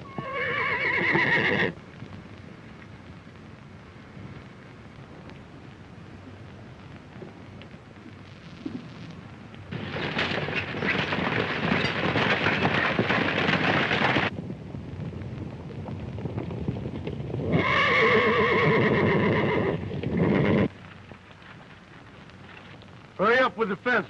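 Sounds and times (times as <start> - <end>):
horse whinnying: 0.0 - 1.8, 17.4 - 20.7
horses galloping hoofbeats: 0.0 - 24.0.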